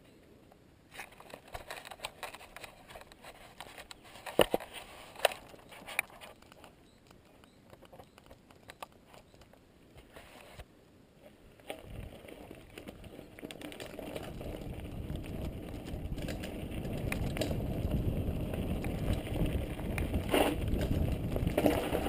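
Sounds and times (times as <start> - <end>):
camera being handled: 0.9 - 10.6.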